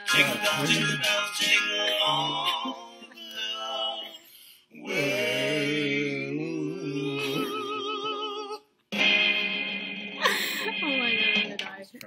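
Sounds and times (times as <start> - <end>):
voices singing a long note: 0.0 - 9.1
high note with vibrato: 8.9 - 11.6.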